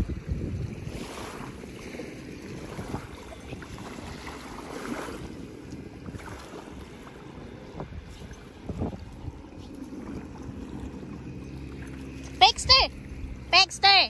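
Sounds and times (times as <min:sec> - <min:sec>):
wind on microphone: 0:00.0 - 0:11.0
waves lapping: 0:00.0 - 0:14.0.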